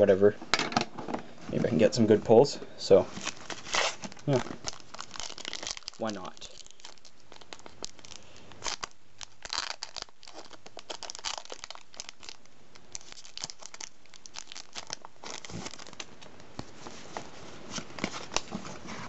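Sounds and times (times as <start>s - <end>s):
plastic wrapper crinkling and tearing: 3.1s - 16.9s.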